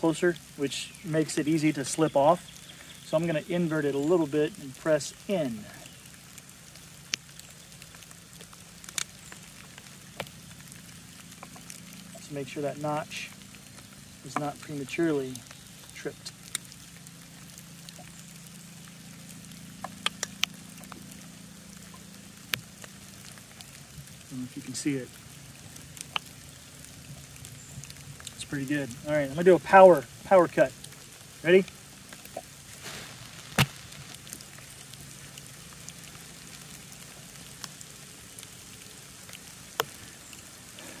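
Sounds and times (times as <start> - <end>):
faint scattered ticks: 0.0 - 41.0
knife cracking through stick: 32.8 - 34.4.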